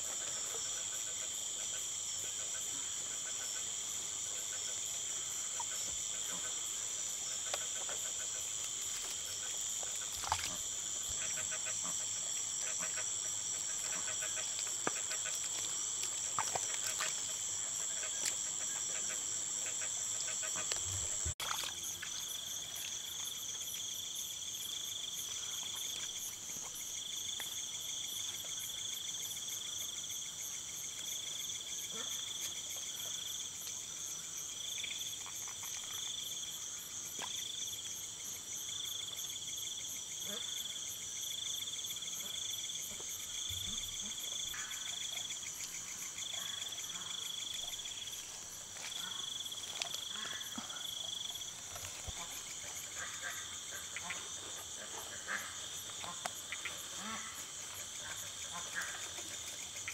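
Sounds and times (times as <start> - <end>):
crickets and insects trilling: 0.0 - 59.9
footsteps in wet mud: 9.9 - 10.7, 47.8 - 50.6.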